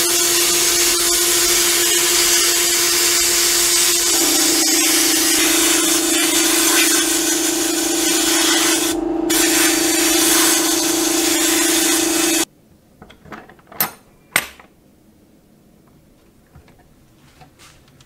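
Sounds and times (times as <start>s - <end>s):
sandblast gun hissing: 0.0s - 12.5s.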